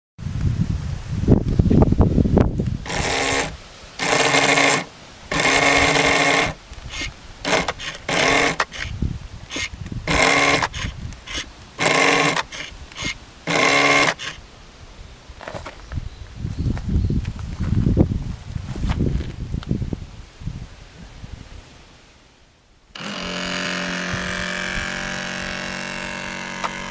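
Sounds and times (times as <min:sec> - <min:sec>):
electric propeller motor whirring: 0:02.7 - 0:14.4, 0:22.9 - 0:26.9.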